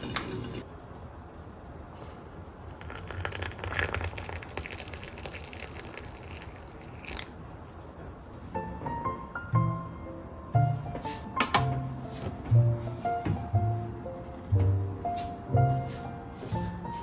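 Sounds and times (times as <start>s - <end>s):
water pouring into teacup: 2.6s - 8.3s
soft music notes: 8.5s - 17.0s.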